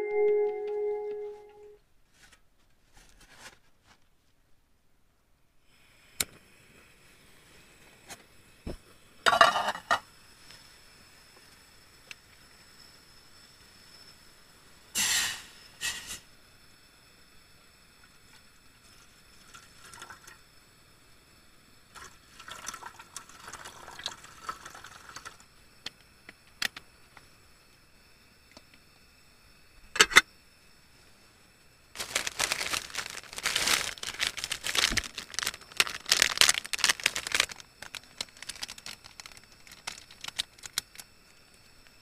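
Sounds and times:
water pouring into metal pot: 19.3s - 20.4s, 21.9s - 25.4s
loud crackling rustling: 32.0s - 41.0s.

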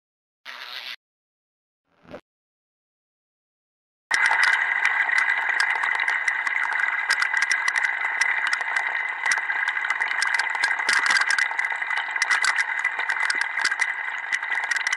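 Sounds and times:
small clicks and crackles: 4.1s - 14.9s
water running from faucet: 4.1s - 14.9s.

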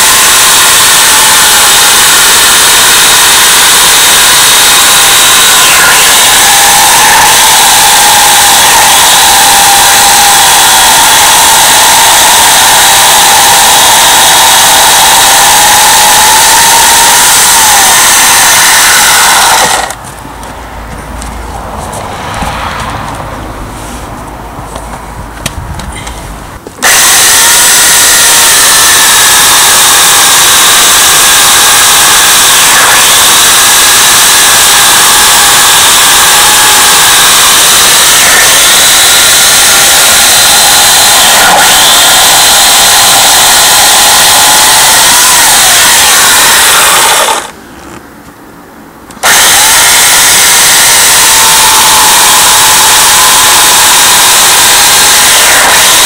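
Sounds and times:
electric chainsaw cutting log: 18.2s - 20.0s, 41.3s - 42.4s, 46.5s - 47.6s.

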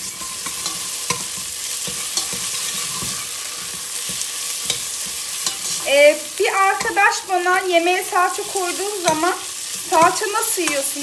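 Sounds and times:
metal spoon scraping pot: 0.0s - 5.9s
onions sizzling in oil: 0.0s - 11.0s.

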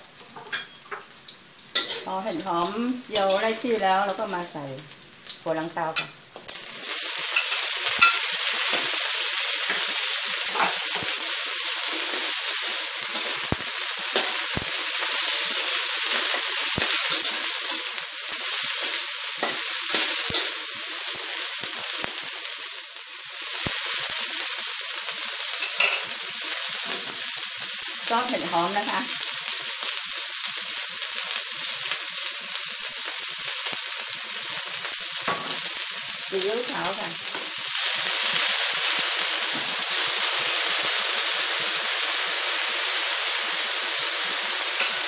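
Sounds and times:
vegetables sizzling in hot oil: 0.0s - 45.0s
metal spatula scraping wok: 1.7s - 3.6s, 7.2s - 18.0s.

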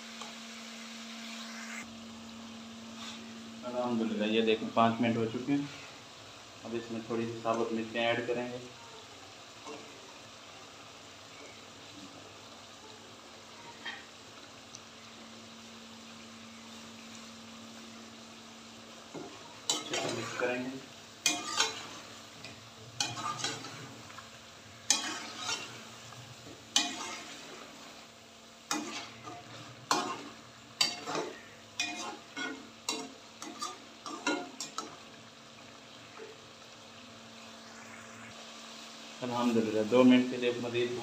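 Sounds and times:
meat sizzling in a pot: 0.0s - 41.0s
metal spatula scraping a pot: 19.1s - 20.6s, 21.2s - 24.0s, 24.8s - 27.8s, 28.7s - 34.9s.

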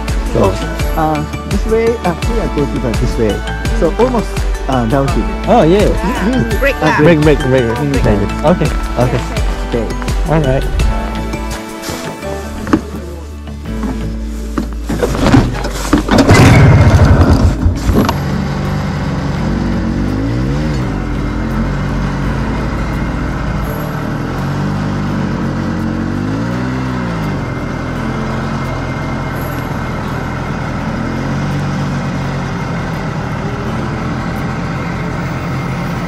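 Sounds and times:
loud knocks and rumbling: 15.1s - 18.3s
snowmobile engine revving: 16.4s - 36.0s.

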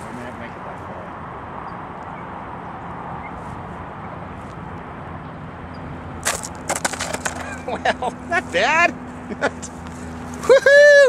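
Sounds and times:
model jet skidding on dirt: 6.2s - 8.5s.

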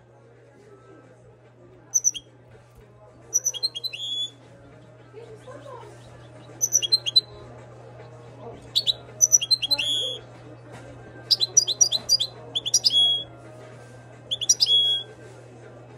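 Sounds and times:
finch twittering chirps: 2.0s - 2.2s, 3.4s - 4.3s, 6.2s - 7.3s, 8.8s - 10.2s, 11.3s - 13.2s, 14.3s - 15.0s.

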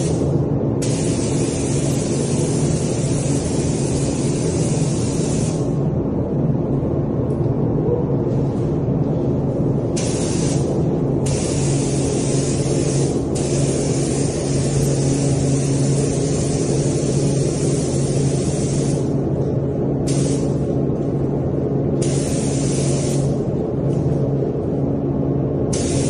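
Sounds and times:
paint spray gun hissing: 0.0s - 5.6s, 10.0s - 10.7s, 11.3s - 19.1s, 20.1s - 20.5s, 22.0s - 23.4s, 25.7s - 26.0s
steady low hum: 0.0s - 26.0s.

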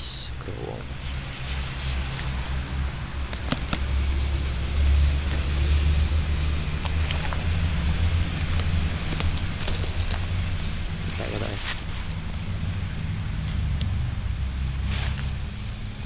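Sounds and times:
rotten wood snapping: 3.2s - 5.5s, 6.6s - 14.0s.

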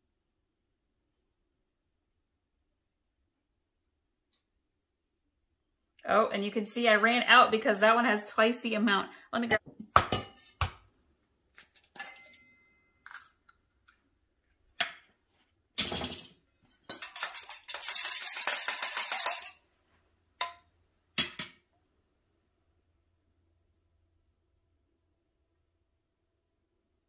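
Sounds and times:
eggs cracking on bowl: 13.0s - 14.0s
eggs beaten in metal bowl: 16.6s - 19.6s.

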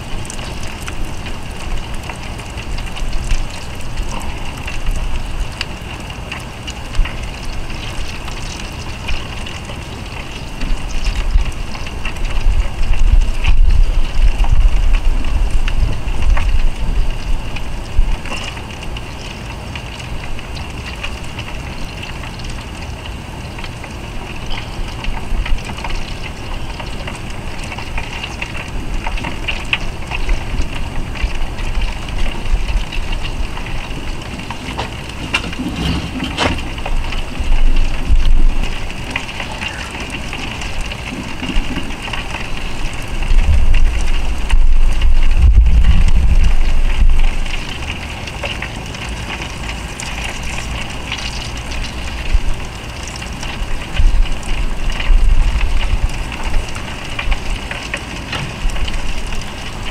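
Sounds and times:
fish sizzling and popping: 0.0s - 59.9s
low rumble: 42.1s - 48.1s.

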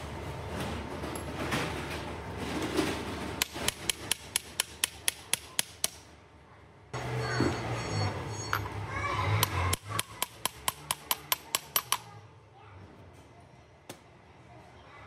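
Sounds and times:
hammer striking steel: 9.4s - 12.1s.

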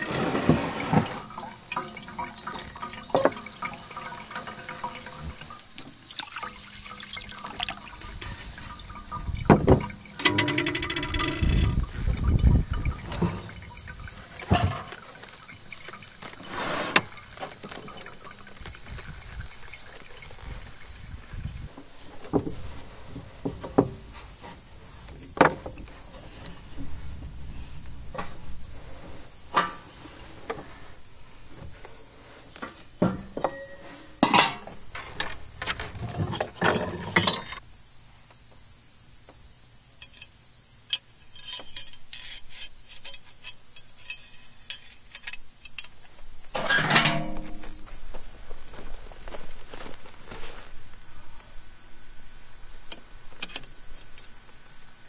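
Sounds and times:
high insect drone: 0.9s - 55.0s
metal utensils clinking: 1.2s - 5.8s, 6.5s - 12.0s, 13.0s - 16.1s, 33.0s - 37.6s, 46.6s - 47.9s.

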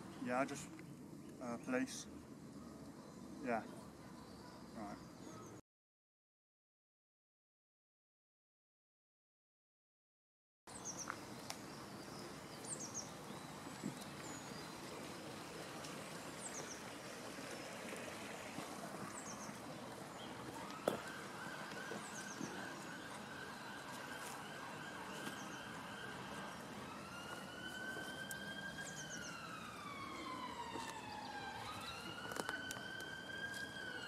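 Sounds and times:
outdoor background noise: 0.0s - 5.6s, 10.7s - 34.0s
police siren wailing: 18.6s - 34.0s.

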